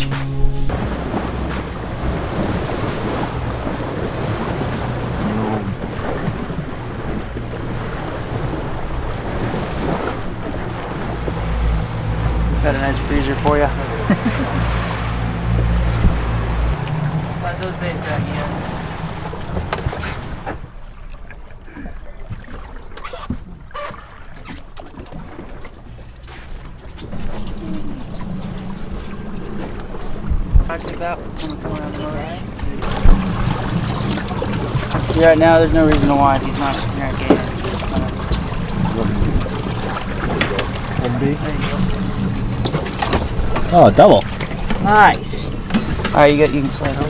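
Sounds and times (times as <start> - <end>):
wind buffeting microphone: 0.0 - 20.5, 27.0 - 47.0
steady low hum: 0.0 - 20.8
sea water washing: 0.0 - 47.0.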